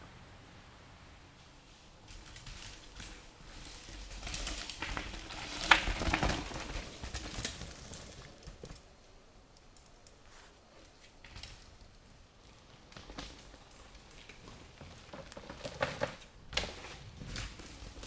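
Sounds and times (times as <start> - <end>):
bike rattling and clicking: 2.1 - 9.0, 10.8 - 18.0.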